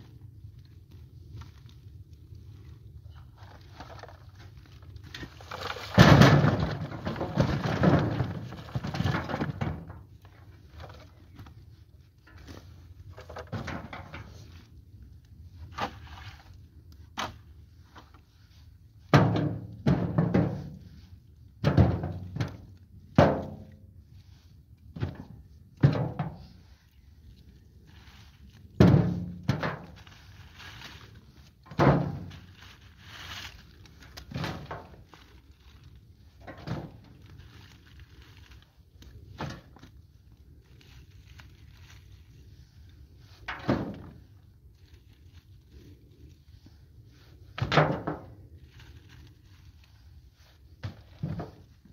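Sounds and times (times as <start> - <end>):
leaves and twigs rustling: 0.0 - 13.6, 26.4 - 51.9
sticks thunking into container: 5.2 - 9.9.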